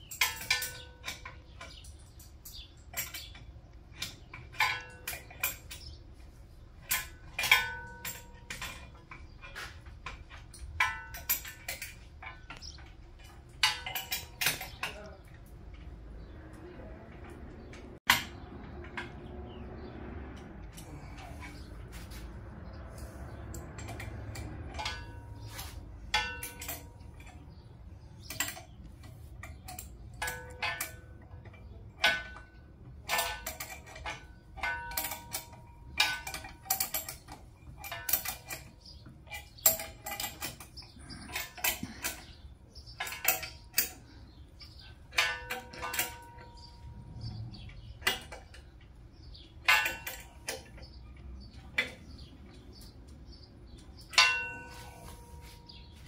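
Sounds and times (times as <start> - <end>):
metal tools clanking together: 0.0 - 6.0, 6.8 - 16.4, 20.4 - 56.0.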